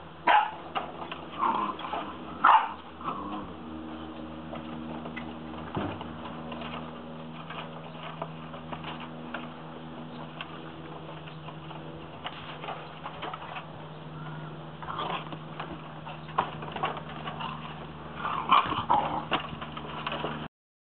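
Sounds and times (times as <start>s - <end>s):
steady low hum: 0.0s - 20.5s.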